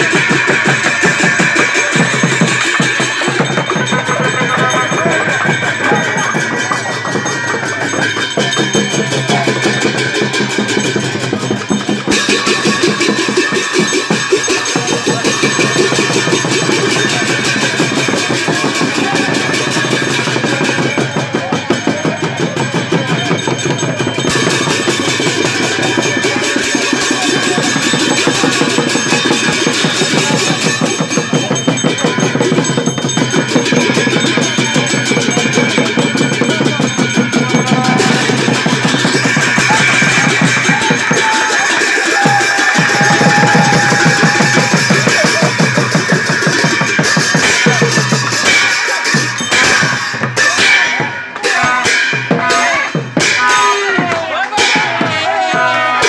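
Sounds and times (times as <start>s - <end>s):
double-headed drum beaten: 0.0s - 56.0s
hand cymbals clashing: 0.0s - 56.0s.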